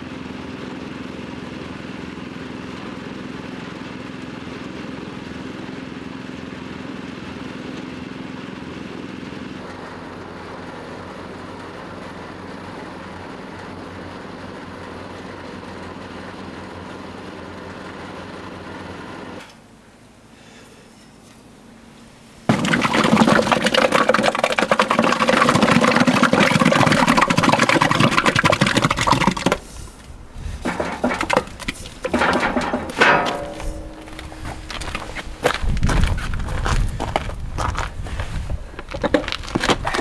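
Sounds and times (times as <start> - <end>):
cement mixer engine hum: 0.0 - 40.0
cement slurry pouring: 22.5 - 35.6, 38.8 - 40.0
clunks and rattles: 30.4 - 40.0.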